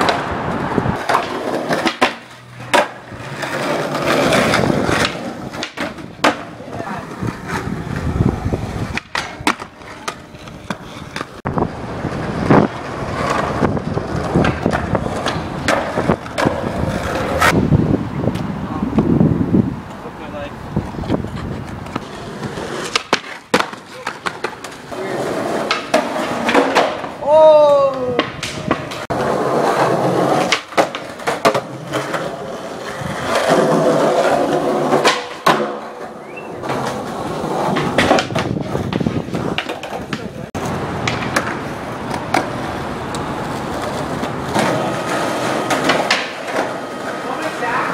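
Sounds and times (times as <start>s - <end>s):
skateboard clacking on ground: 0.0s - 17.6s, 20.8s - 47.9s
skateboard wheels rolling on pavement: 0.0s - 47.9s.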